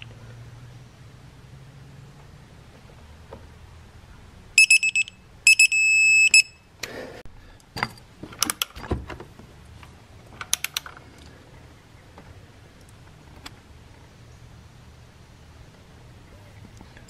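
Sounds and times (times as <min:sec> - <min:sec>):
quick high beeps: 0:04.6 - 0:06.7
long steady tone: 0:04.6 - 0:06.9.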